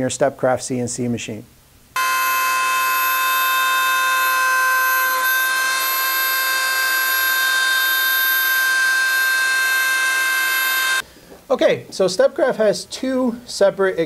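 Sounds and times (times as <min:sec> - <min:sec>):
rotary tool high whine: 0:02.0 - 0:11.0
shop vacuum rushing: 0:02.0 - 0:11.0.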